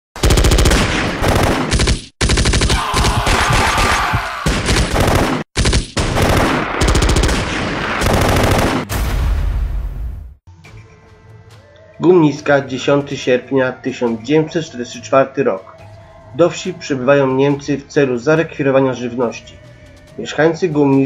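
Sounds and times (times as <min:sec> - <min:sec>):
machine gun automatic fire: 0:00.2 - 0:08.9.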